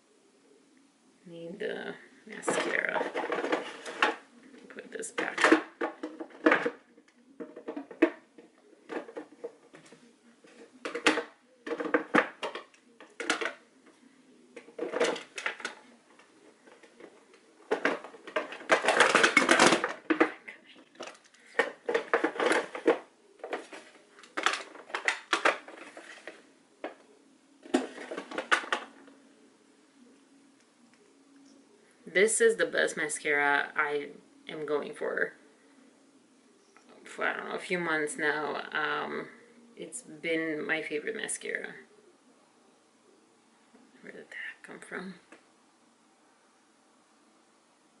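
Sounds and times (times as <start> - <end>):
plastic cases clattering: 2.3 - 29.2.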